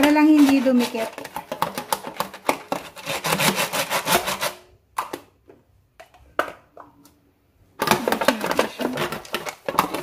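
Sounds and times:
brush rubbing against foil pan: 0.0 - 1.4, 2.7 - 4.7.

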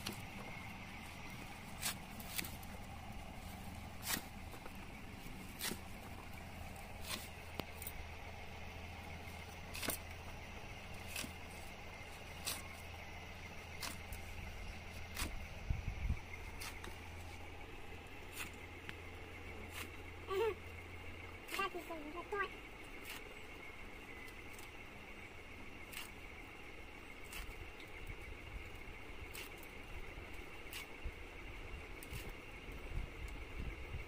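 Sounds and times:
knife chopping leaves and stalks: 0.0 - 8.0, 9.1 - 15.5, 16.2 - 20.7, 21.4 - 21.8, 22.8 - 23.5, 25.8 - 26.3, 27.2 - 31.2, 32.0 - 32.4
steady low hum: 0.0 - 34.0.

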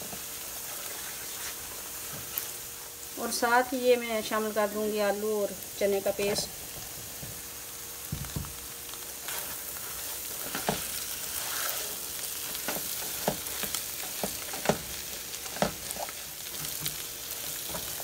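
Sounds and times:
paste sizzling in frying pan: 0.0 - 18.0
spatula scraping and knocking pan: 10.4 - 17.0.

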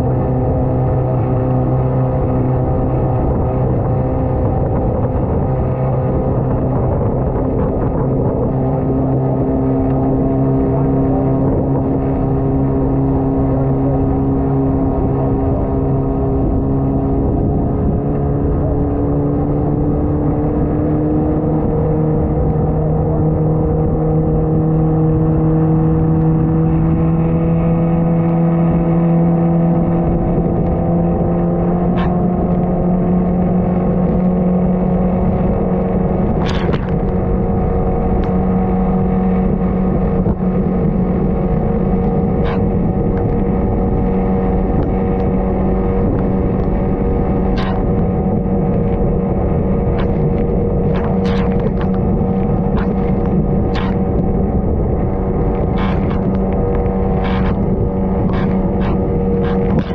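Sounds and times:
vehicle engine running: 0.0 - 59.9
sharp clicks: 36.4 - 37.2, 47.5 - 48.1, 50.0 - 54.4, 55.4 - 59.9.

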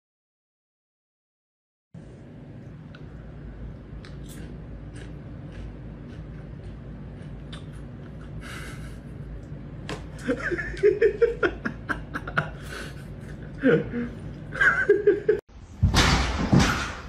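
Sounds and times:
person laughing: 7.7 - 9.4, 10.1 - 15.4.

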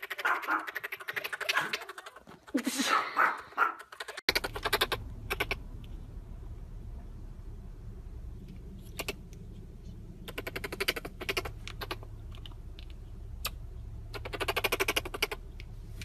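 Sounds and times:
monkey gnawing ball clicking: 0.0 - 2.6, 10.2 - 15.7
low hum inside car: 4.3 - 16.0.

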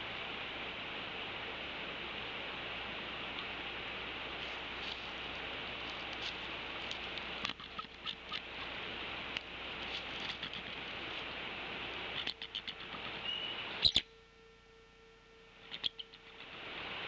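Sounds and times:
steady hiss: 0.0 - 17.0
nest sticks clicking and rustling: 5.9 - 8.4, 9.4 - 10.8.

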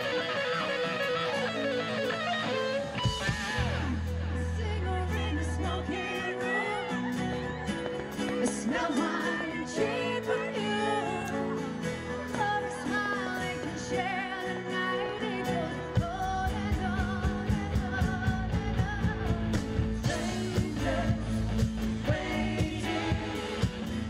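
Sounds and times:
acoustic and electric guitars: 0.0 - 24.0
keyboard: 0.0 - 24.0
bass and drums steady beat: 3.0 - 5.6, 16.0 - 24.0
woman singing lead: 4.3 - 24.0.

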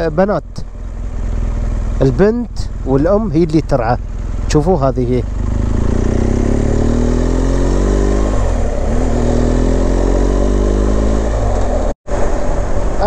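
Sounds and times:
motorcycle engine accelerating: 0.0 - 12.0
wind rush: 11.2 - 13.0.

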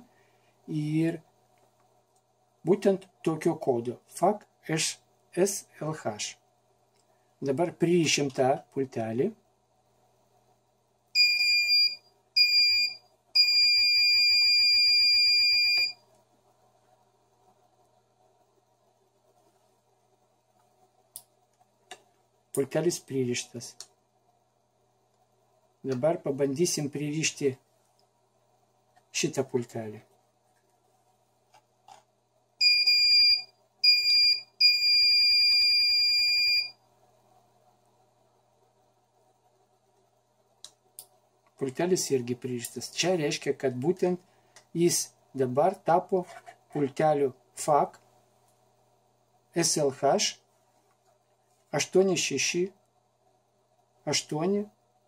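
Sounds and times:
buzzer beeping: 11.2 - 16.0.

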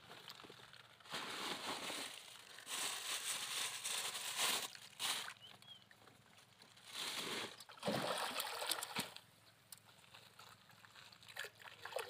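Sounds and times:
water splashing: 7.4 - 9.2, 11.2 - 12.0.

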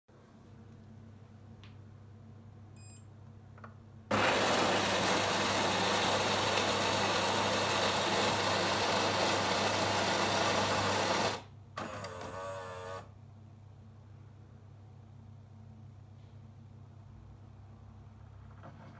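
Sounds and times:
coffee grinder grinding: 4.1 - 11.4.

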